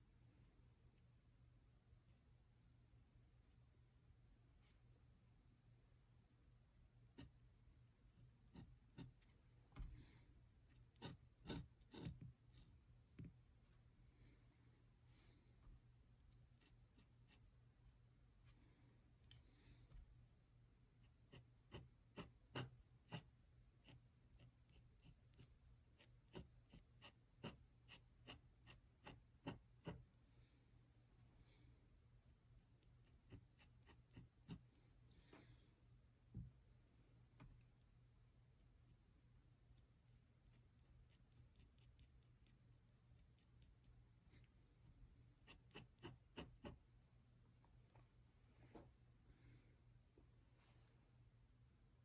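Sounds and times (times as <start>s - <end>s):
pen nib scratching on paper: 7.1s - 7.4s, 8.2s - 13.9s, 15.2s - 17.6s, 21.0s - 30.2s, 32.7s - 34.8s, 39.7s - 46.9s.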